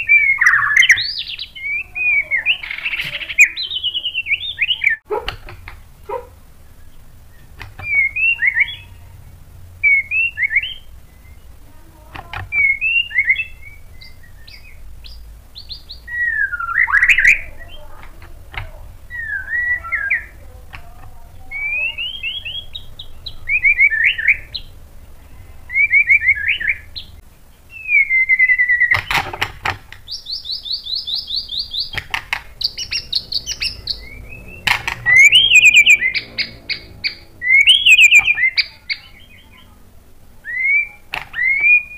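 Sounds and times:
bird singing whistled phrases: 0.0s - 5.0s, 6.6s - 9.0s, 9.8s - 11.6s, 12.4s - 17.9s, 19.1s - 20.4s, 21.5s - 24.7s, 25.7s - 27.1s, 27.7s - 29.2s, 30.1s - 32.0s, 32.6s - 39.6s, 40.4s - 41.9s.

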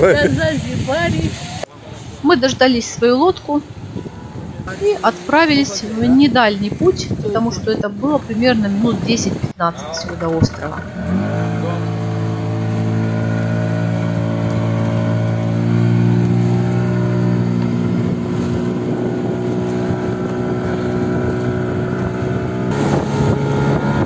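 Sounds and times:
rush of water and wind: 0.0s - 24.0s
boat motor running: 4.2s - 24.0s.

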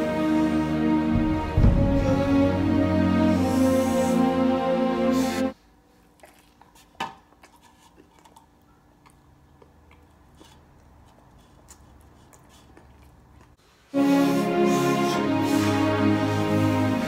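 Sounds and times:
person chewing: 5.9s - 13.6s.

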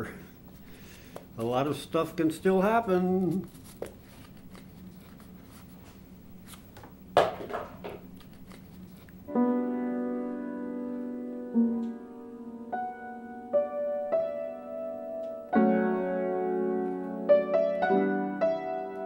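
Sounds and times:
steady low hum: 0.0s - 16.5s
paper packet crinkling: 3.1s - 6.7s, 7.5s - 9.2s
solo piano chords: 9.3s - 19.0s.

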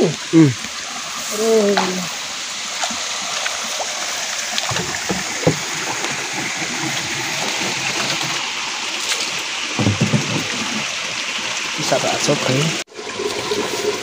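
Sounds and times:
spring water running and splashing: 0.0s - 14.0s
water filling plastic bottle: 2.9s - 14.0s
knocks: 4.7s - 6.0s, 9.8s - 10.7s.

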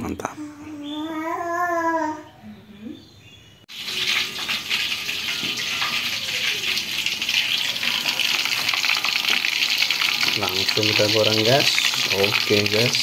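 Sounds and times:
fish sizzling in hot oil: 3.7s - 13.0s.

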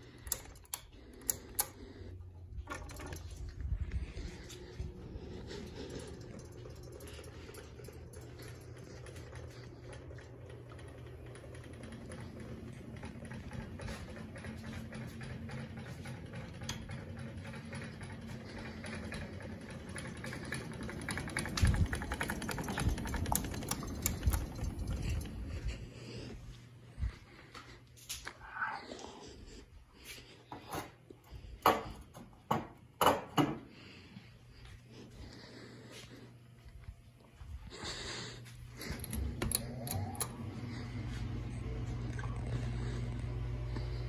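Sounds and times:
fan clicking and rattling: 0.0s - 25.9s, 38.7s - 41.3s
ceiling fan motor hum: 0.0s - 44.0s.

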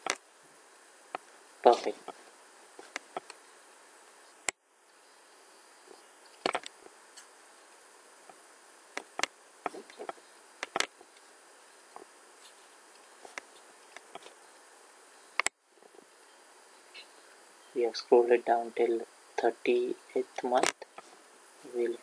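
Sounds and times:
faint microphone hiss: 0.0s - 22.0s
computer mouse clicks: 9.0s - 10.9s.

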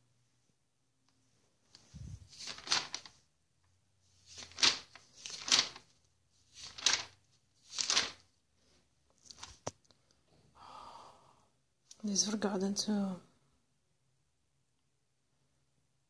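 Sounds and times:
magazine pages turning: 1.7s - 3.2s, 4.1s - 8.3s, 9.2s - 9.8s.

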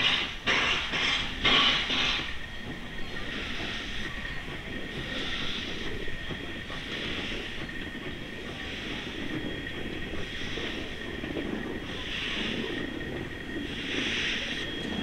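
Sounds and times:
steam locomotive hissing: 0.0s - 15.0s
high whine: 1.5s - 15.0s.

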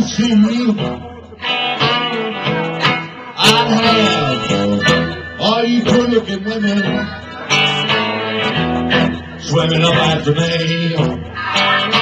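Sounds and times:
electric guitar accompaniment: 0.0s - 12.0s
harmonica bending fills: 1.4s - 9.2s.

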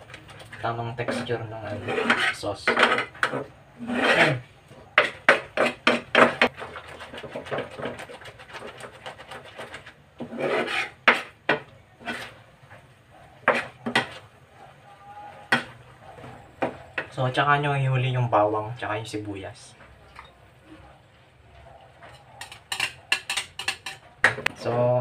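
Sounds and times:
spoon scraping a frying pan: 0.1s - 14.4s, 22.0s - 24.8s.

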